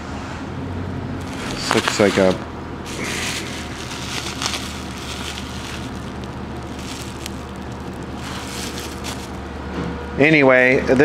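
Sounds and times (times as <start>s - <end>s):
bubble wrap crinkling: 1.2s - 9.5s.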